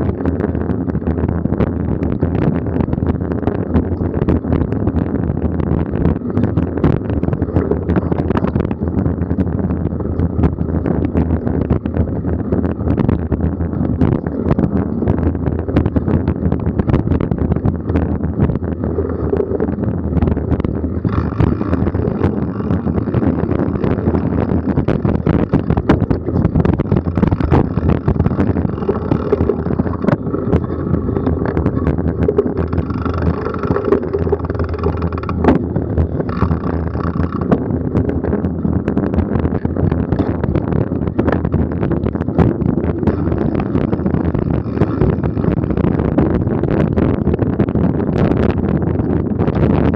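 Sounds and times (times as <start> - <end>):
bike rattling and knocking: 0.0 - 46.2
wind buffeting camera: 0.0 - 49.9
bike knocks and rattles: 20.9 - 38.6.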